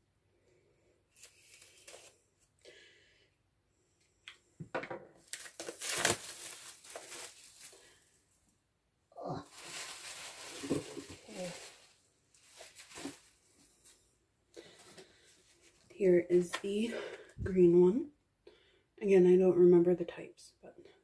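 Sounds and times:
packaging tearing and crinkling: 0:05.2 - 0:08.0, 0:09.3 - 0:13.4.

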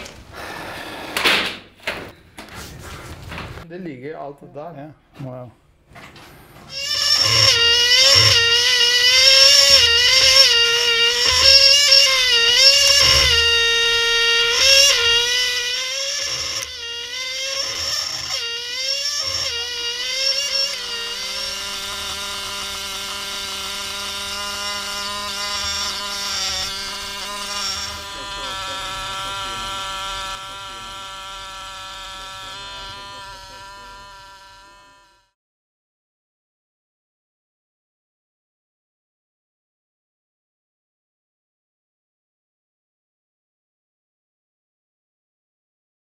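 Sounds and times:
air scribe buzzing against stone: 0:06.7 - 0:35.4.

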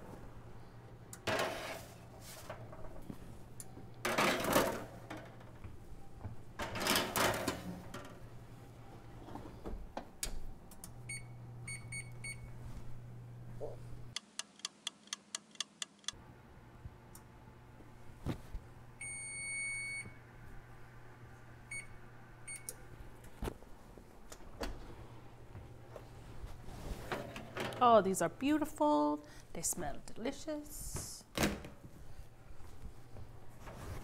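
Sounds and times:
oven control panel beeping: 0:10.2 - 0:12.6, 0:19.0 - 0:20.1.

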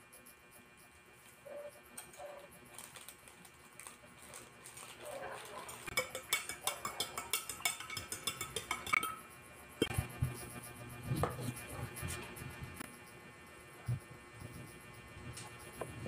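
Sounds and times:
spoon clinking against glass: 0:05.7 - 0:09.3.

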